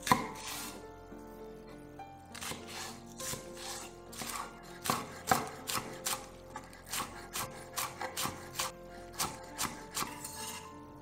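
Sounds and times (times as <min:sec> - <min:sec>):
knife chopping on wooden board: 0:00.0 - 0:00.8, 0:02.3 - 0:10.6
soft background music: 0:00.0 - 0:11.0.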